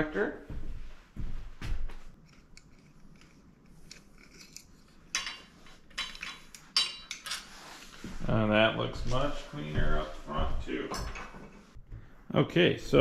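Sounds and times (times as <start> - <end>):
metal hardware clinking: 2.2 - 7.5.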